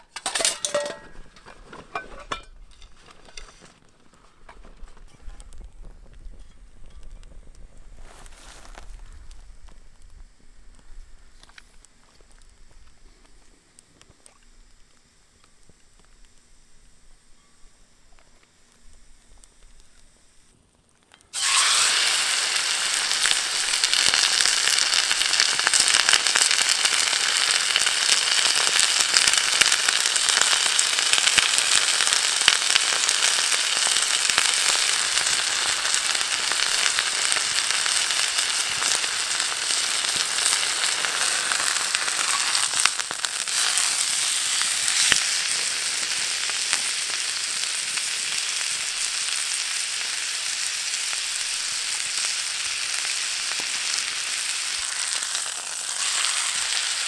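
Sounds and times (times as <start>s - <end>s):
meat sizzling in a pan: 21.3s - 57.0s.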